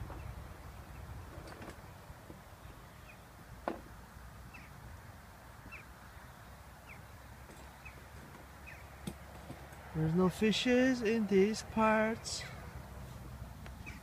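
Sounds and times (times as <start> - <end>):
bird chirping: 2.6 - 3.4, 4.4 - 4.8, 5.6 - 9.0, 13.7 - 14.0.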